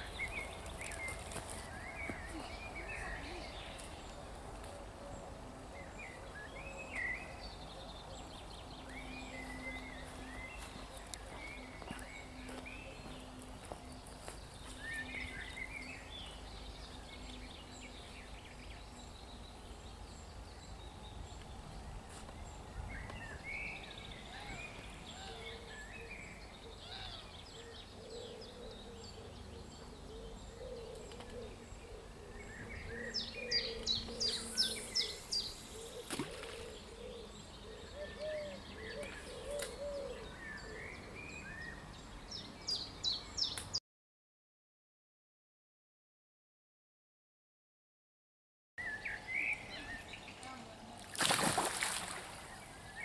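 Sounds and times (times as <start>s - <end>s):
birds singing and calling: 0.0s - 43.8s, 48.8s - 53.0s
low outdoor background: 0.0s - 43.8s
lower bird calls: 23.0s - 41.0s.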